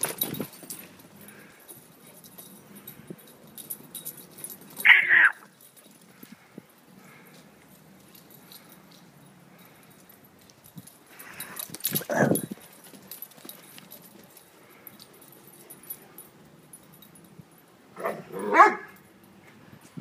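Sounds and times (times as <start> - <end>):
puppies barking: 18.0 - 19.0.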